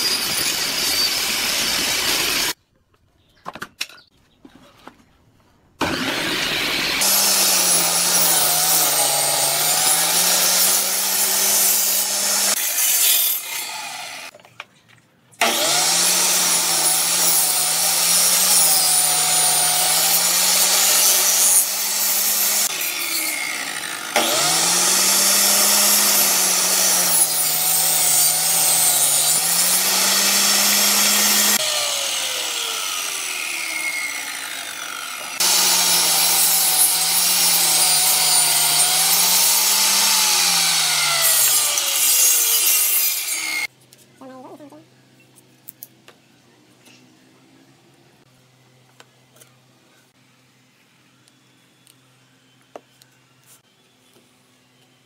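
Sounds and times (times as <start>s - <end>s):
saw spinning down: 0.0s - 2.6s, 5.8s - 14.3s, 15.4s - 43.7s
table saw cutting plywood: 0.0s - 2.6s, 5.8s - 14.3s, 15.4s - 43.7s.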